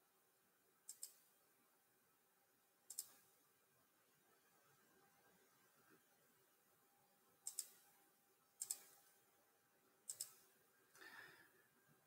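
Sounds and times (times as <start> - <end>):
computer mouse double clicking: 7.5 - 7.8, 8.6 - 9.0, 10.1 - 10.4.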